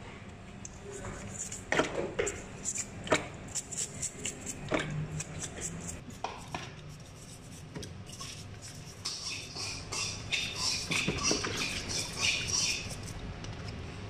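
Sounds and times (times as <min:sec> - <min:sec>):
toothbrush scrubbing shell: 0:06.9 - 0:13.2.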